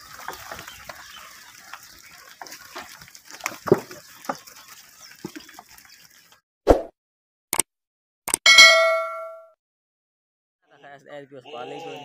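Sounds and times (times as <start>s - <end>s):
goat hooves knocking and scuffing: 0.0s - 5.8s.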